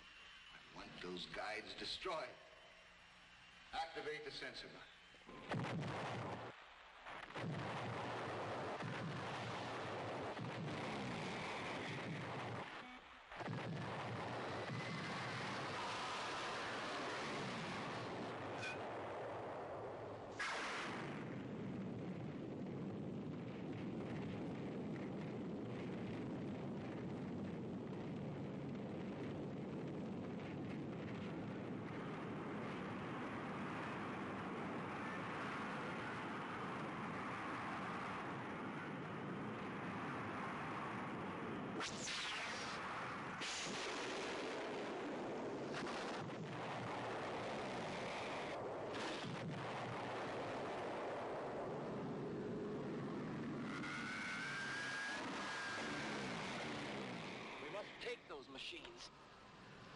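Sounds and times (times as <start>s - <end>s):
flames burning with rushing noise: 5.2s - 58.2s
motorcycle explosion: 5.4s - 6.5s, 7.2s - 12.8s, 41.8s - 54.3s
sharp blasts: 41.8s - 47.7s.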